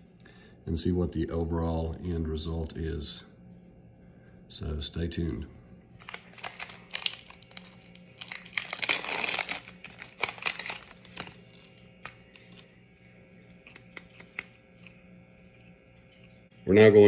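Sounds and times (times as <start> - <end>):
plastic wrapper crinkling and tearing: 6.0 - 12.7, 13.6 - 14.5.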